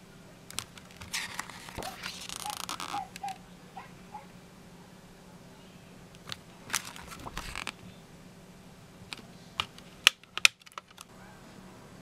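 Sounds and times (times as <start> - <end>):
sharp plastic clicks: 0.5 - 3.4, 9.1 - 11.1
paper page rustling: 0.6 - 3.4, 6.7 - 7.8.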